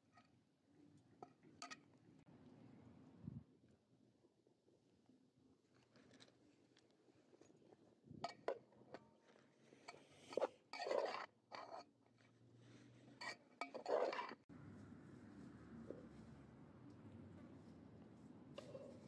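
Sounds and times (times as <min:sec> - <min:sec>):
metal skimmer scraping dishes: 0:13.2 - 0:14.4.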